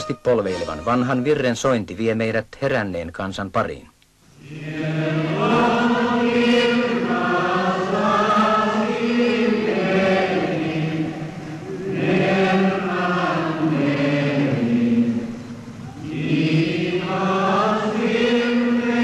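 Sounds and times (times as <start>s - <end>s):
congregation singing a hymn: 4.4s - 19.0s.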